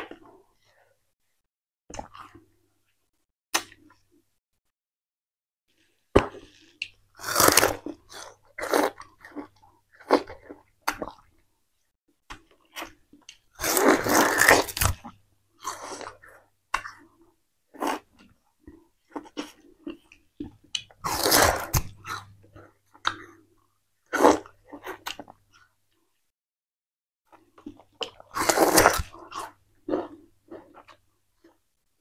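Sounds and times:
chewing sugarcane crunching: 13.3s - 16.2s, 19.1s - 23.4s, 27.6s - 31.6s.

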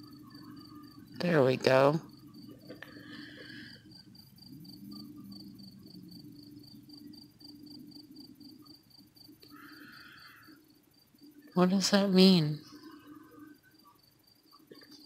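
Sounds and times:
cricket chirping: 0.0s - 15.0s.

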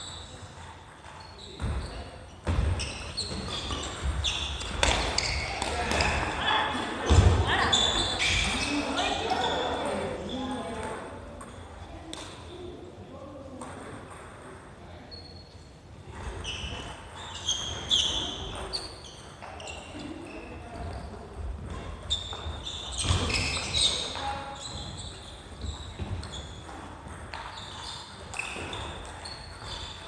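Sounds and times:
shoes squeaking on wooden floor: 0.0s - 10.6s, 16.2s - 30.0s.

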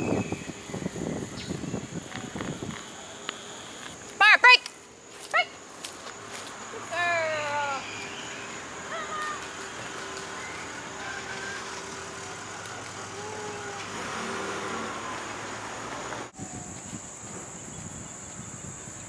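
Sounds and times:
high-pitched insect buzz: 0.0s - 12.7s
road traffic hum: 0.0s - 19.0s.

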